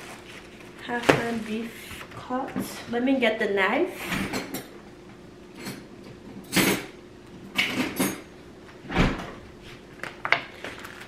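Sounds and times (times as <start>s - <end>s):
kitchen knocks and clatters: 5.6s - 8.3s.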